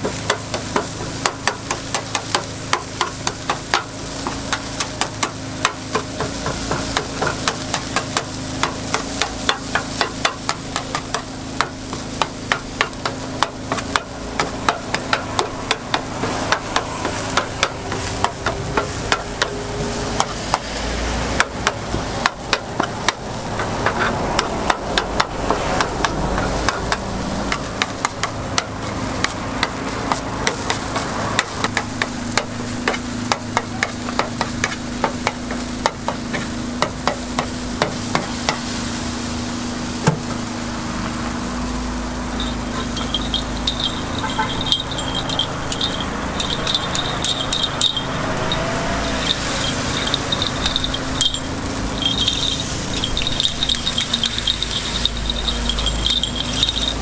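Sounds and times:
batter sizzling: 0.0s - 57.0s.

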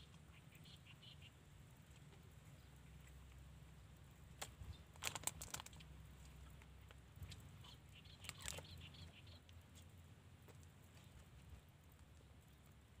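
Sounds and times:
plastic container crinkling and clicking: 4.4s - 5.9s.

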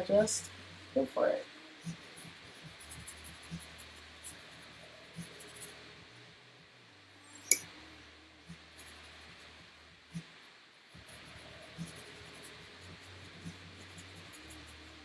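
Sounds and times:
paintbrush on paper: 1.8s - 6.1s, 8.5s - 10.3s, 11.0s - 15.0s.

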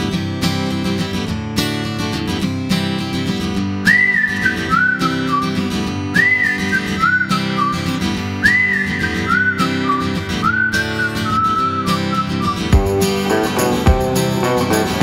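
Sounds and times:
strummed acoustic guitar: 0.0s - 15.0s
whistled tune: 3.8s - 14.8s.

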